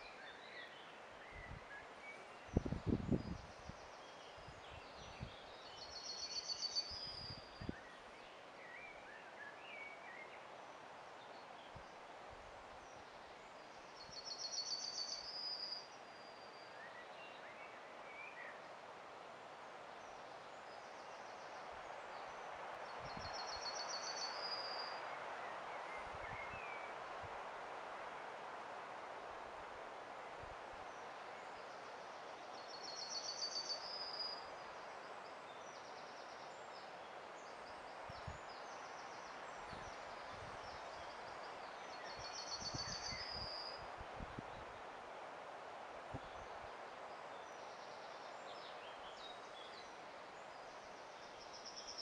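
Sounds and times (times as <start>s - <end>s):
outdoor background hiss: 0.0s - 52.0s
faint bird chirps: 12.9s - 18.6s, 30.9s - 44.6s.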